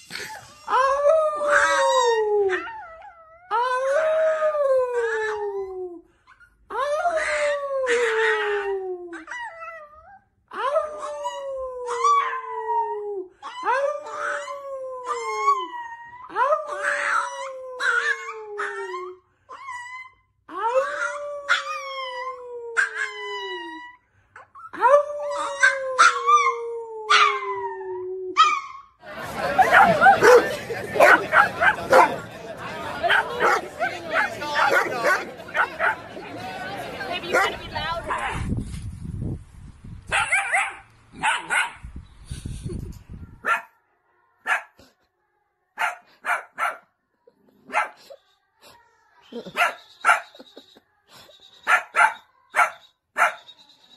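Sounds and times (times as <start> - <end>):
puppy howling: 1.0 - 5.7, 10.7 - 23.9.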